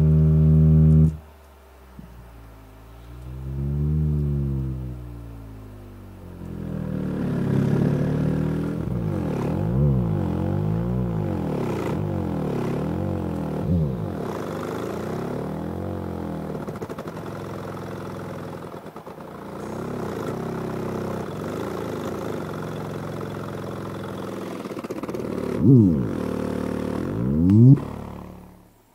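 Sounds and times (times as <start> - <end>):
subwoofer sliding bass tone: 0.0 - 14.4, 25.6 - 28.6.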